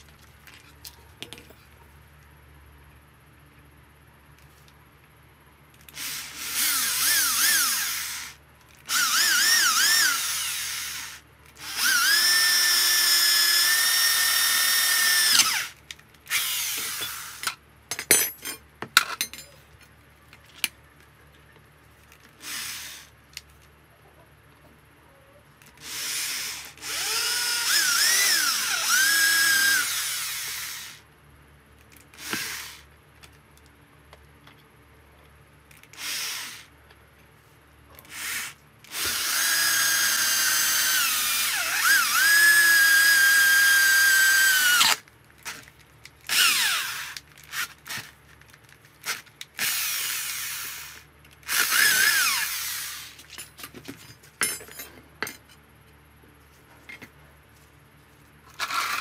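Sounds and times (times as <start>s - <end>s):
electric drill whining: 5.8s - 17.5s, 22.4s - 23.1s, 25.8s - 31.0s, 32.2s - 32.9s, 35.9s - 36.7s, 38.1s - 45.6s, 46.3s - 48.1s, 49.1s - 53.2s, 58.5s - 59.0s.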